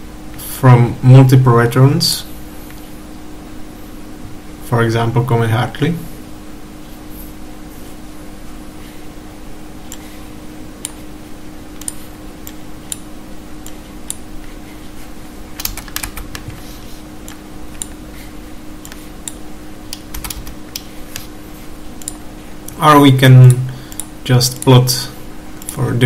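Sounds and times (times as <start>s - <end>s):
steady low hum: 0.0s - 26.0s
keyboard and mouse clicks: 11.8s - 13.0s, 15.6s - 16.6s, 17.3s - 18.0s, 18.8s - 21.3s, 22.0s - 22.8s.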